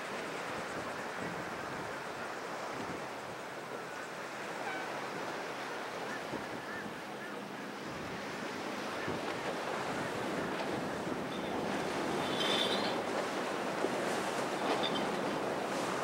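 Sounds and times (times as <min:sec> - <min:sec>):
boat hull splashing: 0:00.0 - 0:16.0
rushing water: 0:00.0 - 0:16.0
wind noise on microphone: 0:02.6 - 0:03.4.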